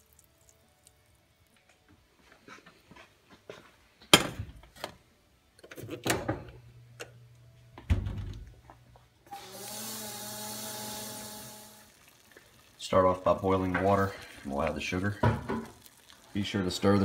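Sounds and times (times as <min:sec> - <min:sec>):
objects knocking on kitchen counter: 0:15.2 - 0:15.7.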